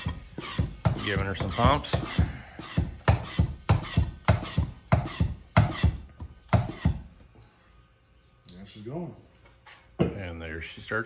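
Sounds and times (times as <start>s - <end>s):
hand pump plunger strokes: 0.0s - 5.9s.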